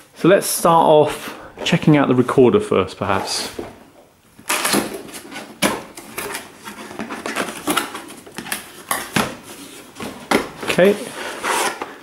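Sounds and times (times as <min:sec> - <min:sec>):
cardboard rustling and scraping: 0:04.4 - 0:12.0.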